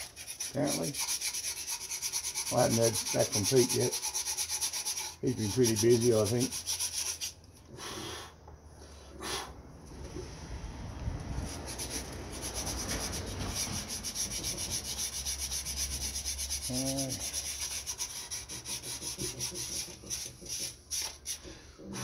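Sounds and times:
hand rubbing strokes: 11.3 - 22.0.

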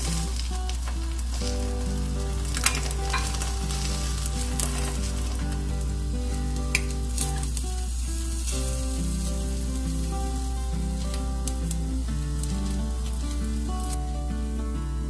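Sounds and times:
egg sizzling in frying pan: 0.0 - 14.0.

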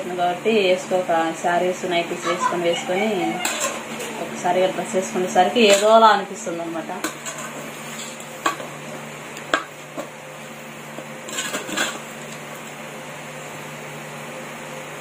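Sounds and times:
steady low hum: 0.0 - 15.0
metal spoon scraping metal pot: 3.4 - 4.0.

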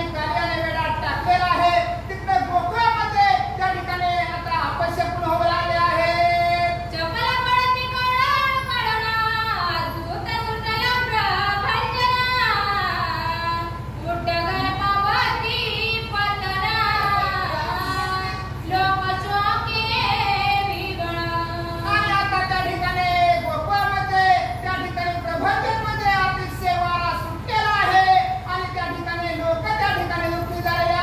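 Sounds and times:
steady low hum: 0.0 - 31.0
woman singing: 0.0 - 31.0.

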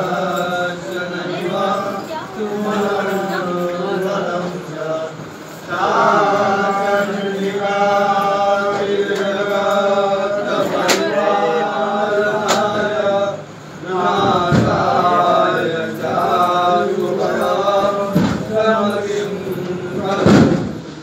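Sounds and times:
devotional chanting: 0.0 - 21.0.

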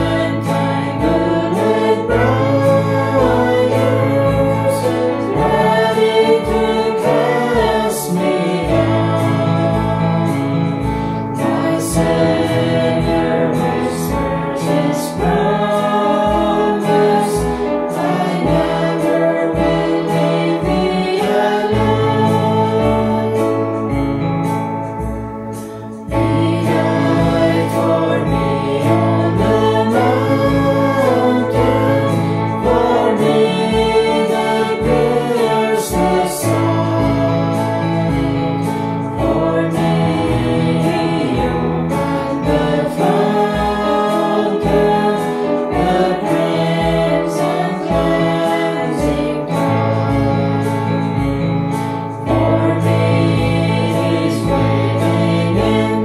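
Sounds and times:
instrumental accompaniment: 0.0 - 56.0
voices singing a hymn: 0.0 - 56.0.

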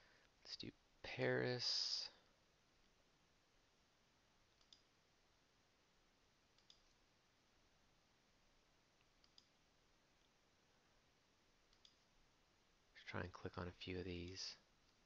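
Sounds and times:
computer mouse clicks: 4.5 - 4.9, 6.5 - 7.0, 9.0 - 9.6, 11.7 - 12.1.

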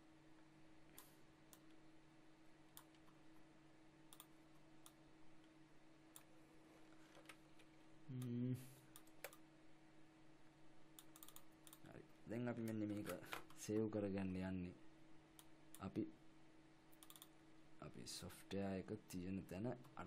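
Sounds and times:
low electrical hum: 0.0 - 20.0
computer mouse clicks: 0.9 - 1.8, 2.7 - 3.2, 4.1 - 5.0, 6.1 - 6.3, 8.9 - 9.4, 11.0 - 11.9, 16.9 - 17.4
brief wordless vocal sound: 8.1 - 8.8.

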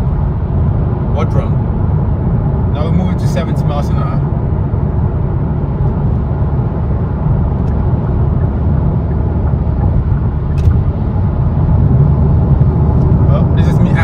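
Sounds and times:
car engine drone from cabin: 0.0 - 14.0
road noise: 0.0 - 14.0.

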